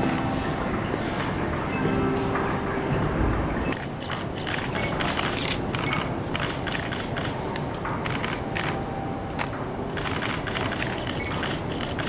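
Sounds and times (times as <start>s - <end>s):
distant train approaching: 0.0s - 5.6s, 8.0s - 11.9s.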